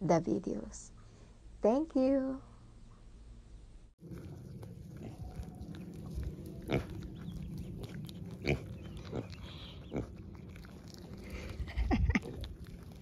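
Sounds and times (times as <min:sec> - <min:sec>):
goat chewing: 0:04.0 - 0:13.0.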